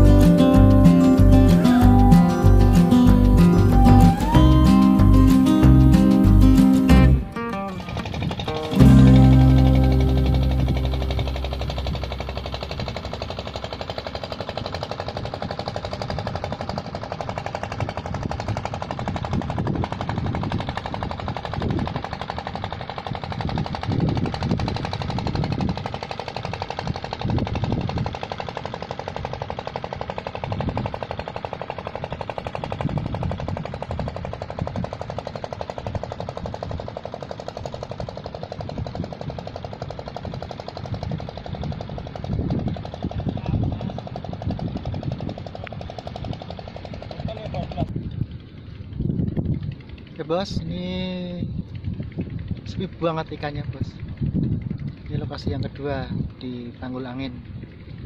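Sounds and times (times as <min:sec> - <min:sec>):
low rumbling: 0:00.0 - 0:22.2
boat engine putt-putt: 0:00.0 - 0:50.1.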